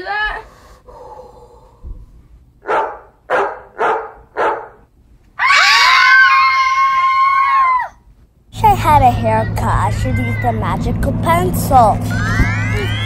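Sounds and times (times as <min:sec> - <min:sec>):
dog barking: 0:02.6 - 0:04.8.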